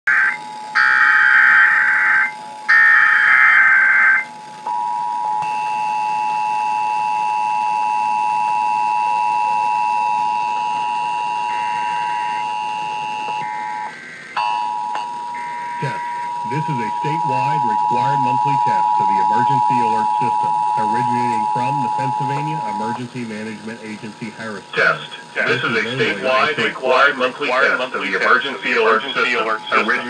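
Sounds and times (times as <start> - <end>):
screeching digital header bursts: 0.1 - 4.3, 15.6 - 27.2
two-tone attention signal: 4.7 - 23.8.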